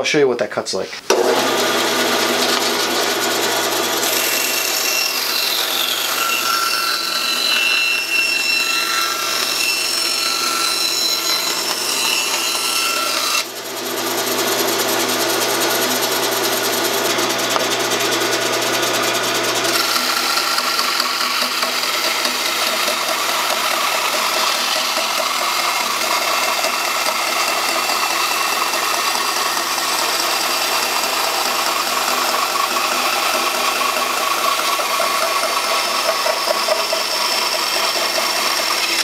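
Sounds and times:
motor hum: 0:01.1 - 0:06.3, 0:13.4 - 0:39.0
saw blade rasping through wood: 0:01.1 - 0:39.0.

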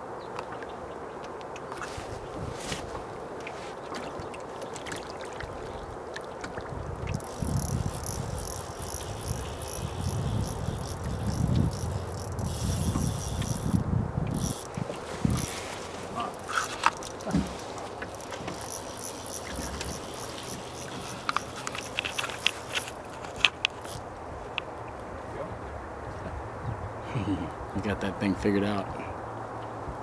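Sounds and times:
wind on microphone: 0:01.9 - 0:03.2, 0:06.6 - 0:17.7, 0:25.3 - 0:27.8
high whirring: 0:07.1 - 0:23.2.

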